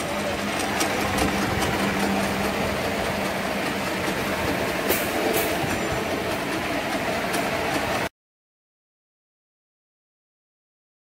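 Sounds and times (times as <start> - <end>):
machine clattering: 0.0 - 8.1.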